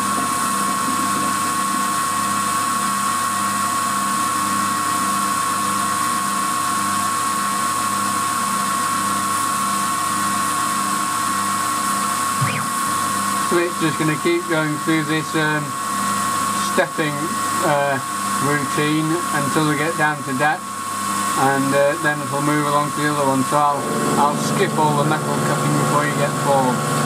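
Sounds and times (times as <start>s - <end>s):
milling machine cutting metal: 11.7s - 27.0s.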